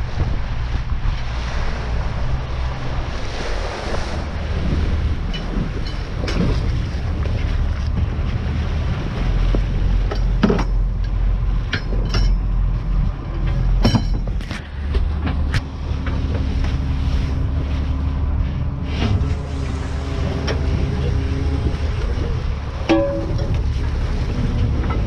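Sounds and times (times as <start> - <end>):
boat engine rumble: 0.0 - 25.0
water washing along hull: 0.0 - 25.0
knocks and clanks: 10.0 - 12.5, 13.3 - 16.5, 22.8 - 25.0.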